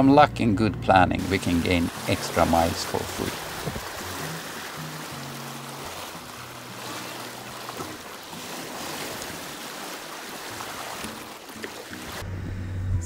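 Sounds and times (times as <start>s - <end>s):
sea water splashing along hull: 1.2s - 12.2s.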